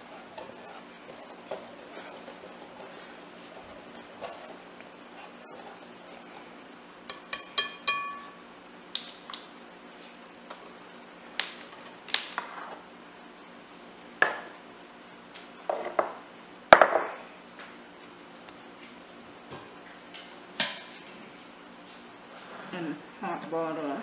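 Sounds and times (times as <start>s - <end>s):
glass clinks and knocks: 7.1s - 8.3s
measuring cup set on counter: 7.1s - 8.3s, 16.8s - 17.1s
whisk tapping glass bowl: 7.1s - 8.4s.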